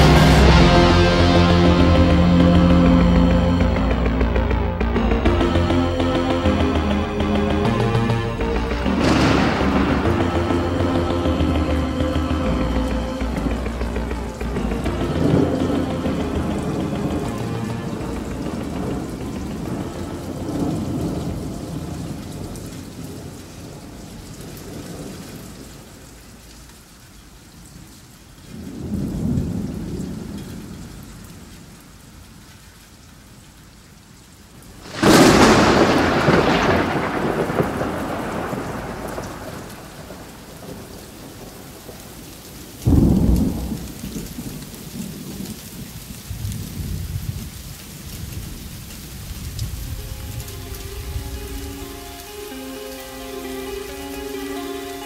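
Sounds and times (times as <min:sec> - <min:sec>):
thunderclap: 0:00.0 - 0:24.0, 0:34.8 - 0:52.1
steady rain: 0:00.0 - 0:55.0
rolling thunder: 0:06.6 - 0:25.9, 0:28.6 - 0:31.0, 0:34.8 - 0:52.2.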